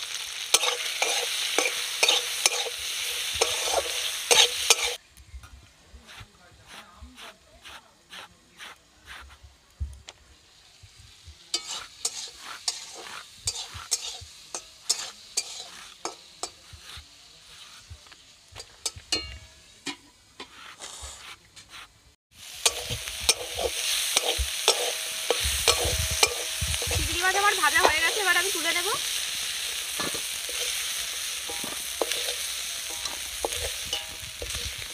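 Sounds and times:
prawns sizzling in a wok: 0.0s - 5.1s, 6.0s - 34.9s
metal spatula scraping wok: 0.2s - 5.0s, 11.5s - 17.9s, 18.6s - 34.9s.

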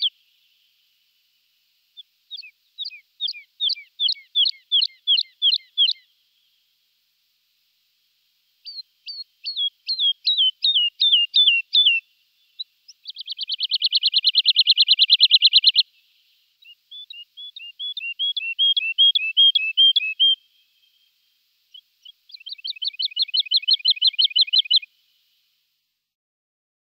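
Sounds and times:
bird singing whistles and trills: 0.0s - 0.2s, 2.0s - 6.1s, 8.6s - 16.0s, 16.6s - 21.1s, 21.7s - 24.9s.

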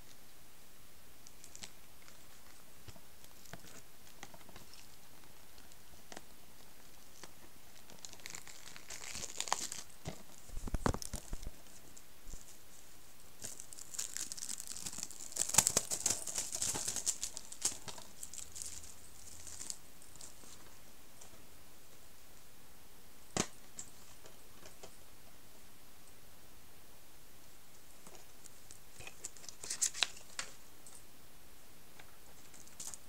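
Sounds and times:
plastic packaging crinkling: 7.1s - 20.6s, 28.1s - 30.6s.

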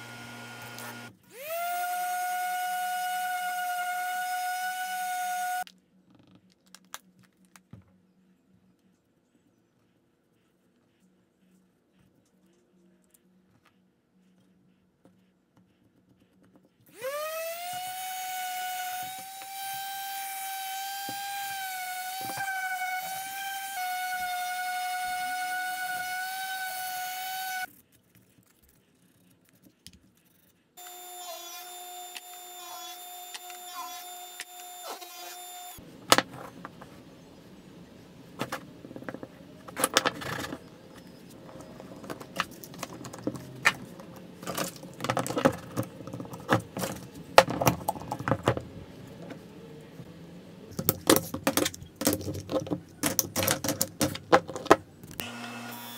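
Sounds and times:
lower motor whine: 0.0s - 5.6s, 30.8s - 35.8s, 55.2s - 55.9s
orbit sander whine: 0.0s - 5.6s, 16.9s - 27.7s, 30.8s - 35.8s, 55.2s - 55.9s.

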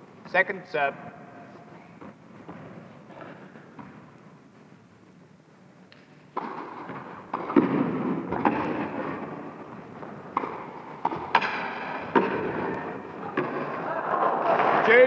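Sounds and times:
tennis ball hits echoing: 6.0s - 14.8s
crowd murmur: 12.0s - 15.0s.

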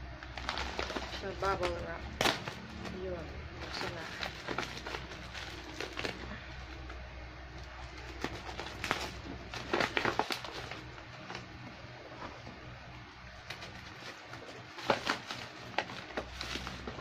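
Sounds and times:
bubble wrap tearing and crinkling: 0.0s - 12.6s, 13.2s - 17.0s
low steady hum: 0.0s - 17.0s.

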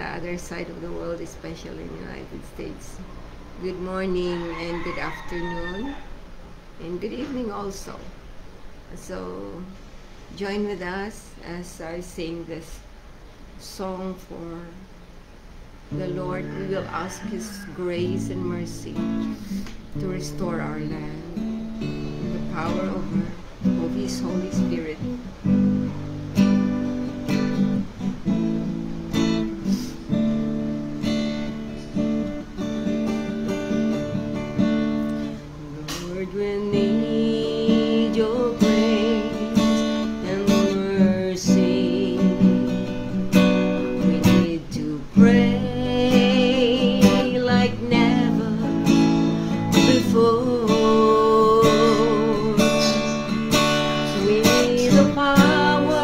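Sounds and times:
woman singing: 0.0s - 3.0s, 3.6s - 6.0s, 6.8s - 8.1s, 10.4s - 12.8s, 13.6s - 14.9s, 15.9s - 21.6s, 22.2s - 25.2s, 29.2s - 30.0s, 35.3s - 56.0s
acoustic guitar strumming: 15.8s - 56.0s.

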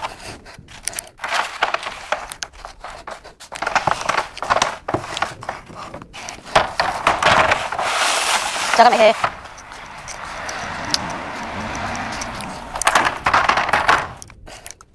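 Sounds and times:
plastic crates clattering: 3.5s - 14.3s.

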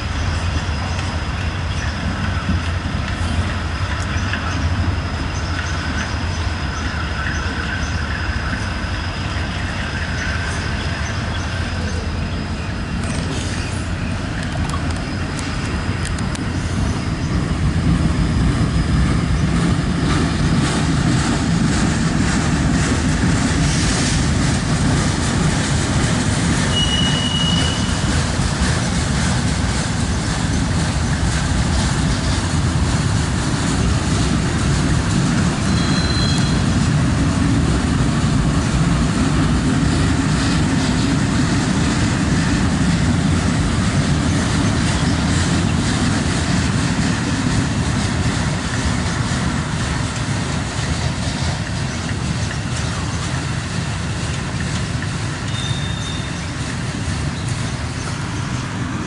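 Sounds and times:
steel wheels rumbling on rail: 0.0s - 59.0s
high wheel squeal: 26.6s - 28.1s, 35.6s - 36.8s, 55.4s - 56.6s.

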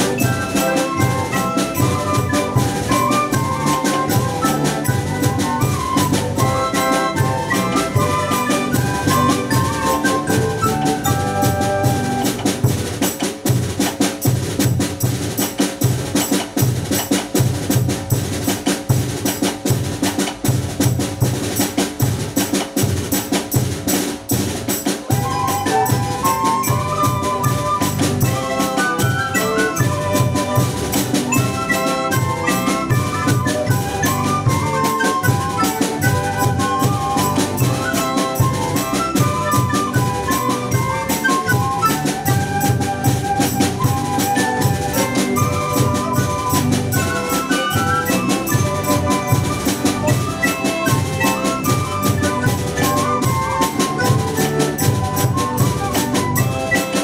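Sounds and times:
guitar: 0.0s - 12.6s, 25.1s - 57.0s
bandoneon: 0.0s - 12.8s, 25.0s - 57.0s
wooden flute melody: 0.0s - 17.1s, 24.8s - 57.0s
steady drum beat: 0.0s - 57.0s.

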